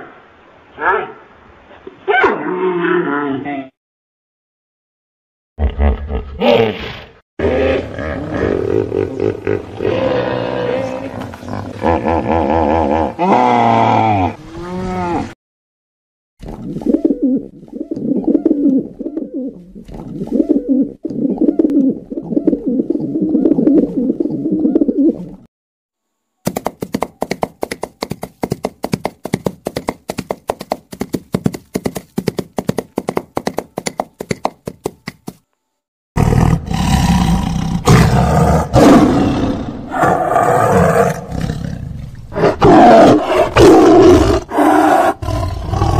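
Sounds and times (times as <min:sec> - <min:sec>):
tigers roaring: 0:09.7 - 0:14.9, 0:36.2 - 0:45.9
horse hoofbeats trotting: 0:26.5 - 0:35.4.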